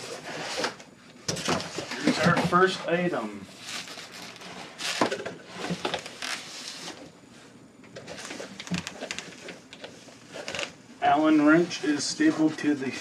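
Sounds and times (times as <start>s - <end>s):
plastic bag rustling: 3.6s - 7.0s.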